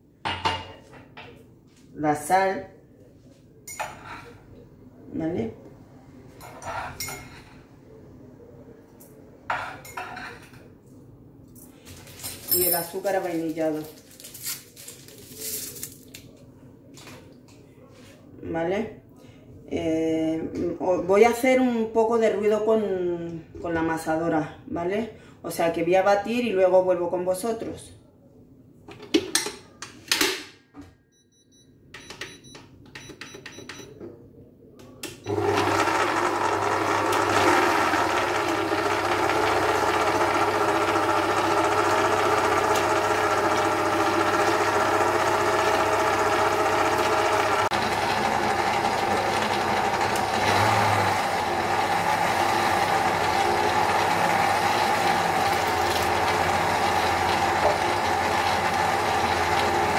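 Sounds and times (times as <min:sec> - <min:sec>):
stand mixer motor whisking: 0:35.3 - 0:59.9.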